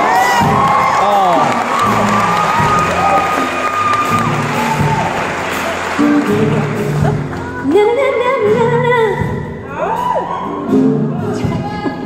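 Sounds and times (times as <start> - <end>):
audience cheering: 0.0 - 7.6, 9.7 - 10.9
band bass and guitar: 0.0 - 12.0
woman singing into a microphone: 7.0 - 9.5.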